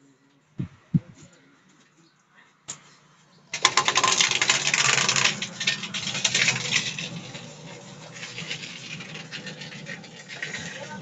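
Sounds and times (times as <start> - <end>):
engine metallic clicking and clattering: 3.6 - 11.0.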